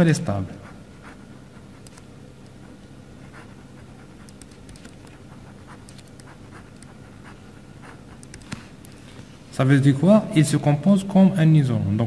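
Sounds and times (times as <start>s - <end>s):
steady low hum: 0.0s - 12.0s
ballpoint pen writing on paper: 0.5s - 8.9s.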